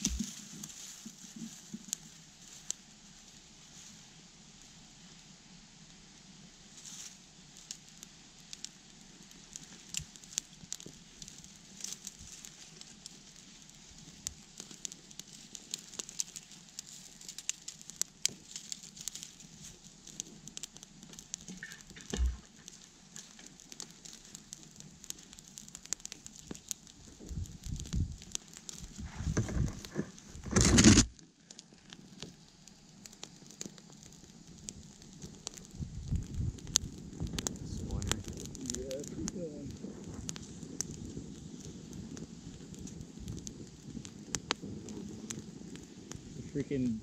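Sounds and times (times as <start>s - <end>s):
fire crackling and popping: 0.0s - 47.0s.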